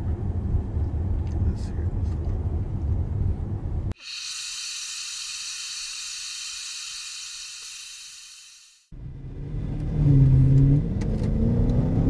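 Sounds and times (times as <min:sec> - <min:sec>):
low rumble inside car: 0:00.0 - 0:03.9
gas hissing through hose: 0:04.0 - 0:08.9.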